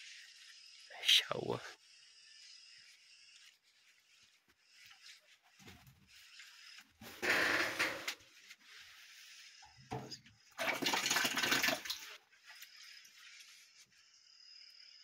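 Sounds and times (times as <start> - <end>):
water splashing into bucket: 10.6 - 12.1.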